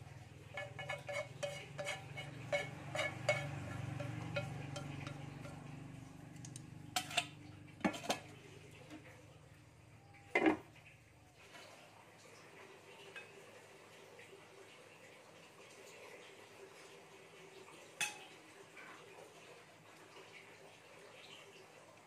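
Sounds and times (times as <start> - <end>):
spatula tapping and scraping in wok: 0.5 - 5.8, 6.5 - 8.3
cookware clanking: 0.5 - 5.9, 6.9 - 9.0, 10.3 - 10.6, 18.0 - 18.3.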